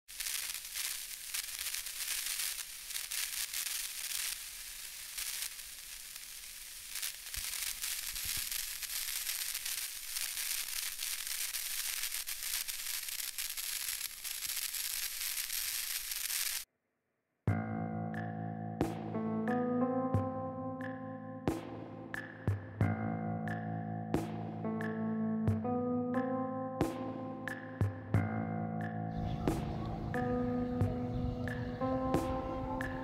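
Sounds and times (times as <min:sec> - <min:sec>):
crackling static hiss: 0:00.1 - 0:16.7.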